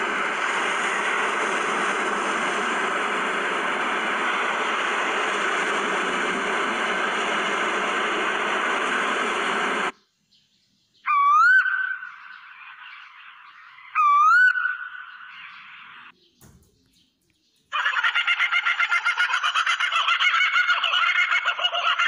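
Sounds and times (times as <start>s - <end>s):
steady rushing noise: 0.0s - 10.0s
bird rising whistle call: 11.0s - 16.8s.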